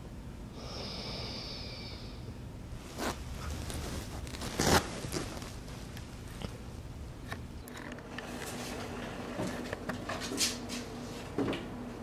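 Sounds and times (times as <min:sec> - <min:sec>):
dog rustling on fabric cushion: 0:02.8 - 0:06.0.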